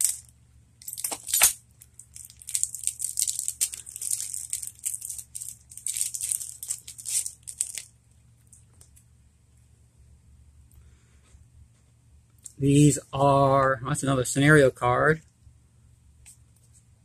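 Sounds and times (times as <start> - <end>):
cellophane wrap crinkling and tearing: 0.0 - 0.3, 0.9 - 7.9.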